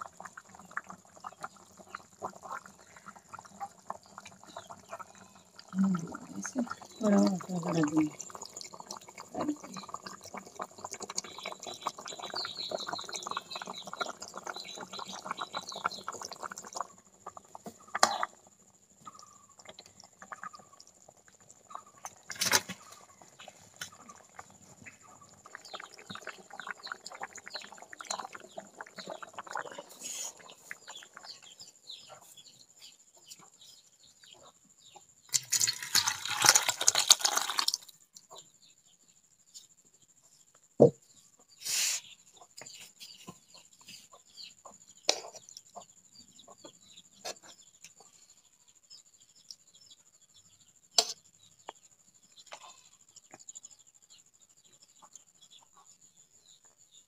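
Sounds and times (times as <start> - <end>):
curry bubbling and crackling: 0.0 - 38.4
curry splashing into bowl: 35.3 - 37.9.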